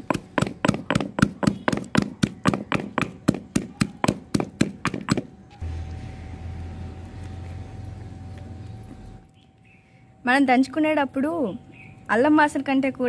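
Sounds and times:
pestle pounding in stone mortar: 0:00.0 - 0:05.3
steady low hum: 0:00.0 - 0:12.2.

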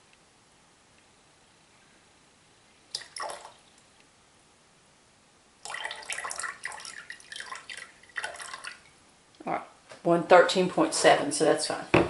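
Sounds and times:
water pouring into plastic pitcher: 0:02.9 - 0:03.7, 0:05.6 - 0:09.0.

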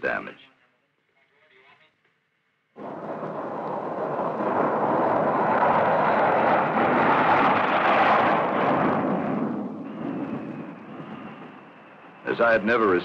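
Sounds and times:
jet engine roar: 0:02.8 - 0:13.0.

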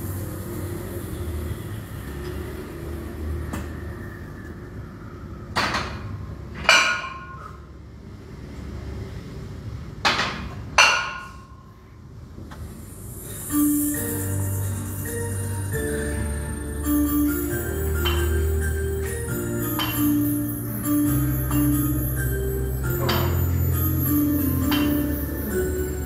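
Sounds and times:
metal weights clanking: 0:23.0 - 0:23.5.

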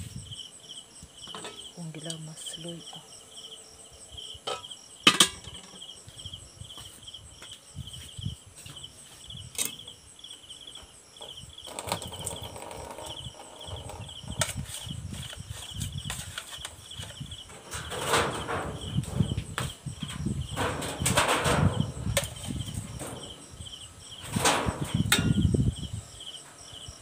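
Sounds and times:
cricket chirping: 0:00.0 - 0:27.0
handling knocks and rustles: 0:11.2 - 0:23.6.

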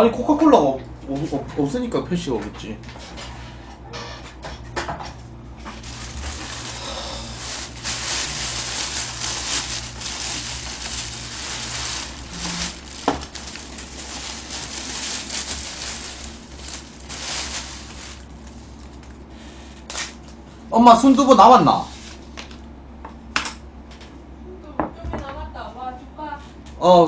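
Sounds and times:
plastic bag rustling: 0:05.6 - 0:19.2.

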